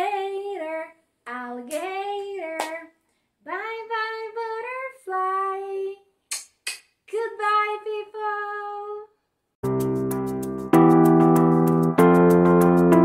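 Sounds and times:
keyboard tune: 9.6s - 13.0s.

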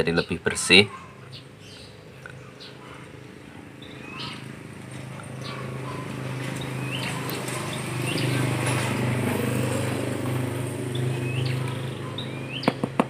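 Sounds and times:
engine hum: 0.0s - 13.0s
bird chirps: 3.8s - 4.5s, 5.3s - 8.8s, 10.9s - 13.0s.

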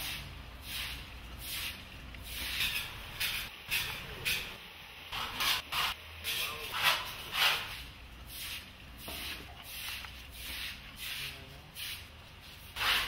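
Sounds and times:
broom sweeping wet concrete: 0.0s - 4.0s, 5.2s - 13.0s.

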